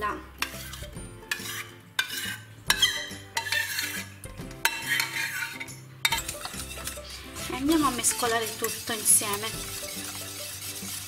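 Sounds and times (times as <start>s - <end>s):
spoon clinking on pan: 0.4s - 4.0s, 4.6s - 7.0s
spoon scraping sauce: 0.4s - 7.5s, 8.4s - 11.0s.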